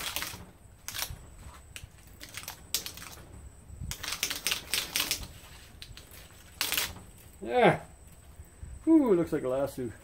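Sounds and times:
wire scraping and clicking: 0.0s - 7.4s.

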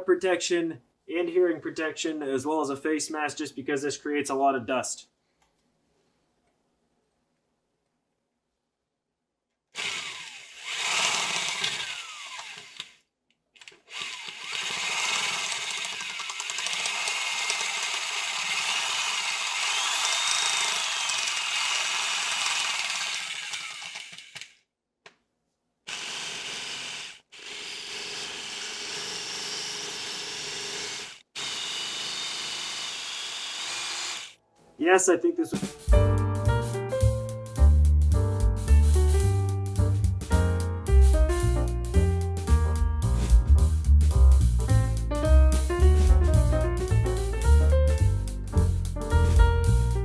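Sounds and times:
electric drill boring into concrete: 9.8s - 13.0s, 13.6s - 24.6s, 25.9s - 34.4s.

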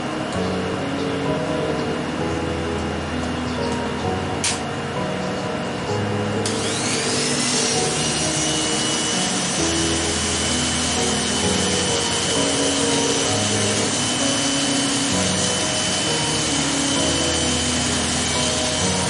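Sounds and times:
background music: 0.0s - 19.0s
electric hair clippers buzzing: 6.4s - 19.0s.

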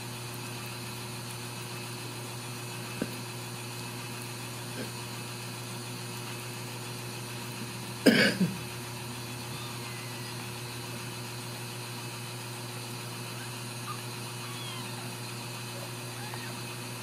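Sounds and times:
low room hum: 1.9s - 17.0s
person coughing: 8.0s - 8.6s.

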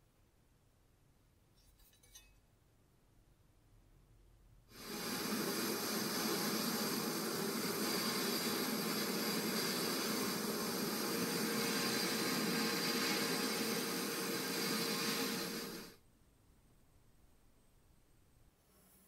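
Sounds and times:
sandblast gun hissing: 4.8s - 16.0s.

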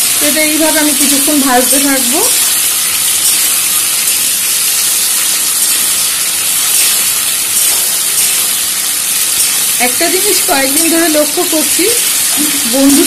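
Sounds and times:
vegetables sizzling in frying pan: 0.0s - 13.0s.

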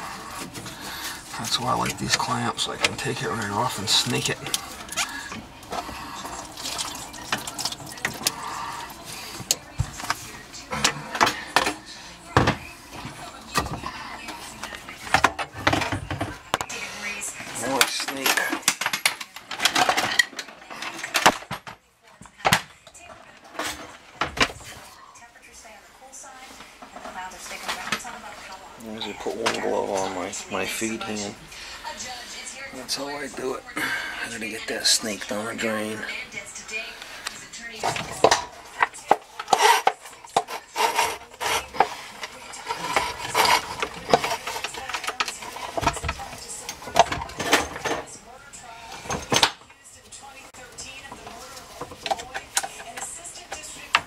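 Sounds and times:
drain snake scraping pipe: 0.0s - 11.6s, 37.7s - 47.0s.

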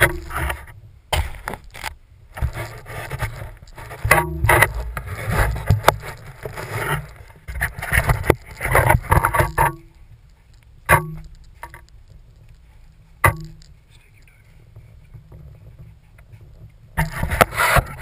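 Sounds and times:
clothing rubbing against camera: 1.4s - 9.6s, 13.8s - 18.0s
sharp knocks: 13.2s - 13.7s.

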